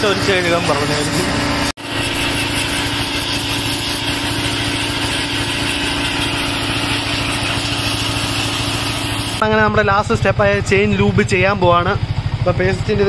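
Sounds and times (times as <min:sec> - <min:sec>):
water jet hissing: 0:00.0 - 0:09.4
pressure washer pump pulsing: 0:00.0 - 0:09.5.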